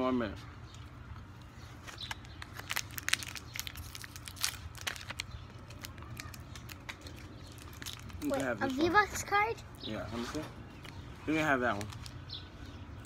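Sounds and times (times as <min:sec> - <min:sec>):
plastic wrapper crinkling: 0:01.8 - 0:08.7, 0:10.7 - 0:12.2.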